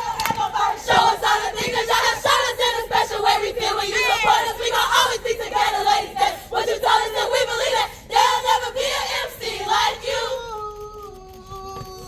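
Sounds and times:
women shouting a chant: 0:03.7 - 0:06.2.

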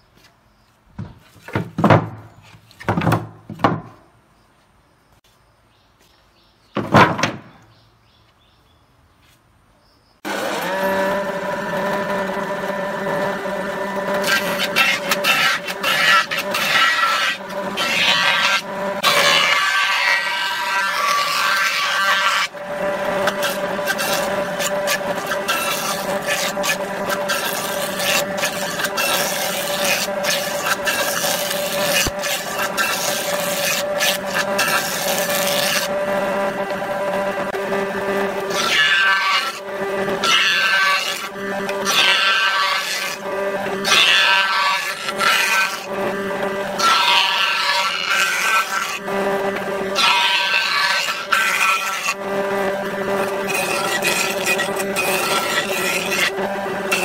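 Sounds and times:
wooden board knocks: 0:01.0 - 0:04.0, 0:06.8 - 0:07.5
jointer planer whine: 0:10.2 - 0:57.0
planer cutting wood rasping: 0:10.2 - 0:57.0.

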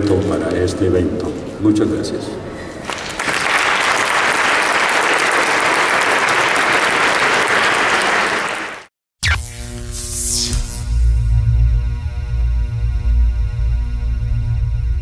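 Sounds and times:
audience applauding: 0:02.8 - 0:08.9
music: 0:10.0 - 0:15.0.

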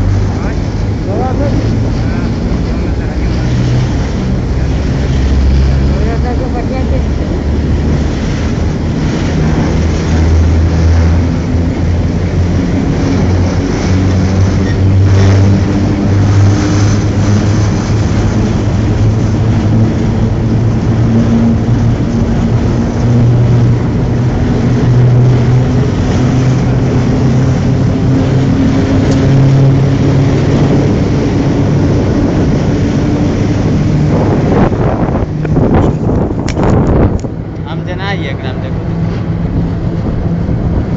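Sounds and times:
locomotive engine drone: 0:00.0 - 0:40.9
wheel rail and wind noise: 0:00.0 - 0:40.9.

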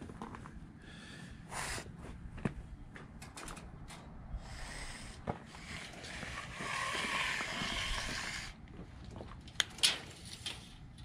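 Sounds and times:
tape measure blade rasping: 0:05.6 - 0:08.6.

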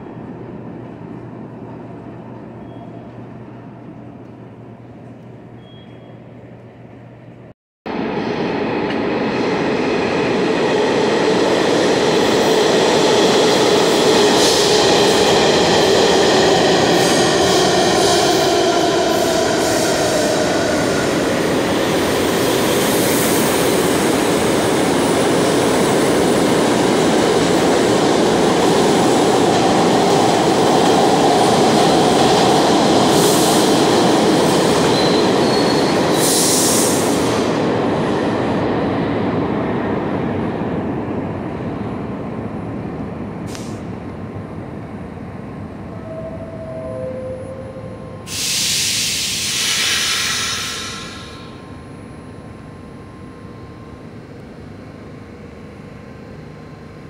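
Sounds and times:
subway train rumble and clatter: 0:00.0 - 0:57.0
high wheel squeals: 0:34.9 - 0:36.3.

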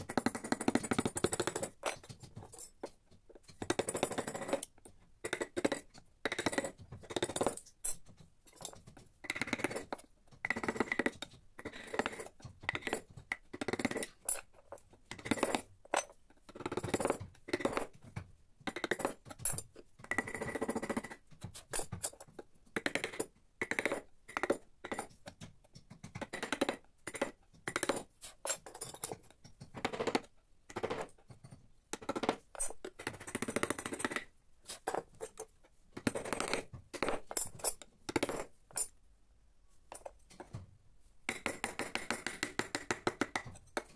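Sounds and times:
chisels cutting wood: 0:03.5 - 0:04.7, 0:05.3 - 0:18.0, 0:26.0 - 0:38.9.

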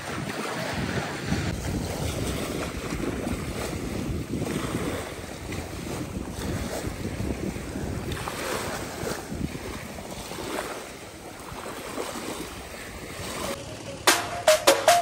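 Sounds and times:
wind buffeting microphone: 0:00.0 - 0:13.6
surf on a beach: 0:00.0 - 0:15.0
music with drum beat: 0:13.6 - 0:15.0.

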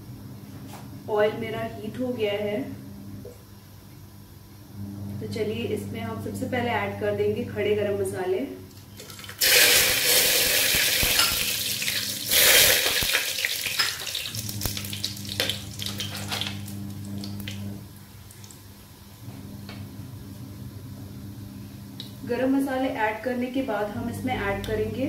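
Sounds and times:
low steady hum: 0:00.0 - 0:25.0
spices sizzling in hot oil: 0:09.1 - 0:17.1.

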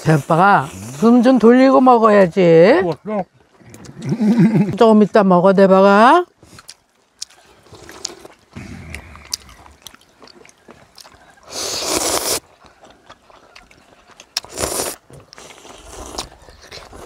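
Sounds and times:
chewing: 0:02.8 - 0:04.8, 0:06.3 - 0:17.0
noodle slurp: 0:11.4 - 0:12.5, 0:14.3 - 0:17.0.

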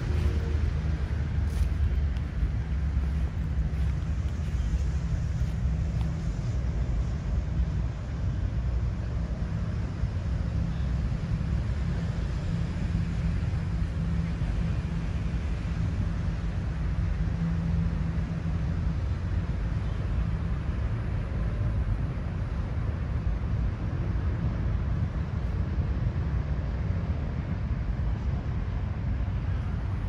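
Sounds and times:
wind on microphone: 0:00.0 - 0:06.7
low hum: 0:00.0 - 0:16.7
distant city traffic: 0:00.0 - 0:30.0.

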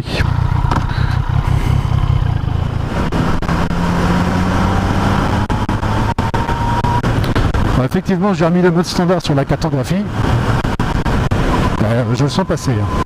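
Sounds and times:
motorcycle engine pulling away: 0:00.0 - 0:07.0
wind and road noise: 0:00.0 - 0:13.0.

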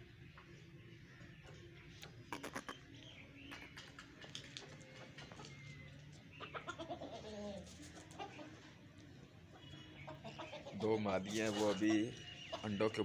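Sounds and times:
chickens clucking: 0:00.2 - 0:13.0.

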